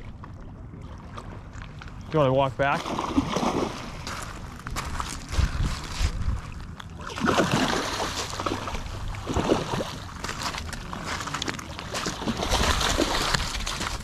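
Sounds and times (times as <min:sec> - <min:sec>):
fish thrashing and splashing: 0:02.7 - 0:14.0
low wind rumble on microphone: 0:03.4 - 0:07.1.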